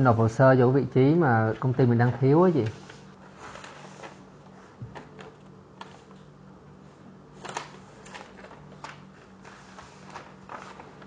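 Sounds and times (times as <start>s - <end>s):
faint steady hum: 0.0s - 11.0s
paper rustling and crinkling: 2.6s - 4.3s, 7.4s - 11.0s.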